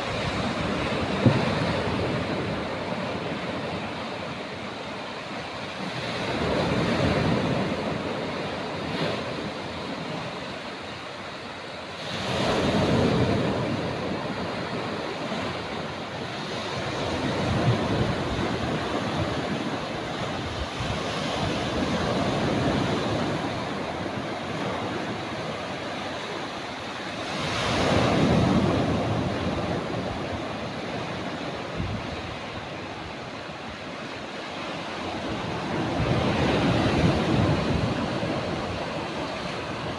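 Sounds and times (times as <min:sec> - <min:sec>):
waves breaking on a beach: 0:00.0 - 0:39.9.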